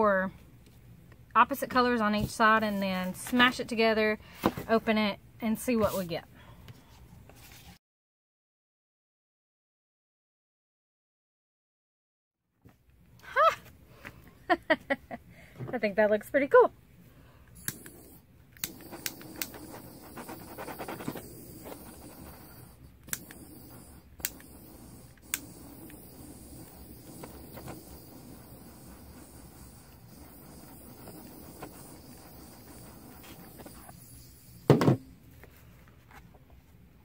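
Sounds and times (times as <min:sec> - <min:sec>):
butane torch hissing: 0:17.6 - 0:35.0.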